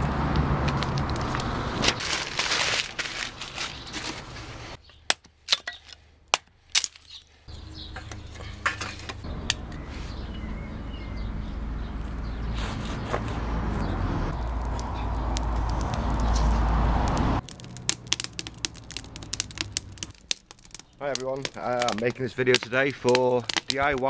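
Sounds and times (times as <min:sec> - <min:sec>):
newspaper rustling and crackling: 0:00.7 - 0:04.8.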